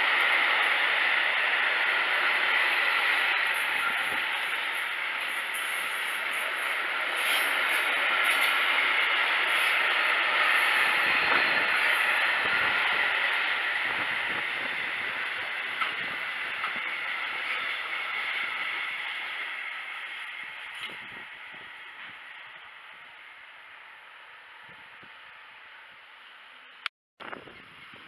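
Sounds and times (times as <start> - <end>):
train wheels rattling on track: 0.0 - 22.2.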